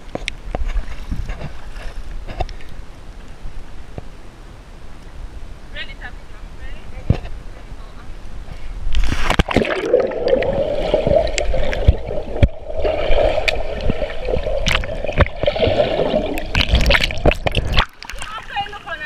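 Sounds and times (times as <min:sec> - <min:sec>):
underwater rushing and bubbling: 0:08.8 - 0:19.0.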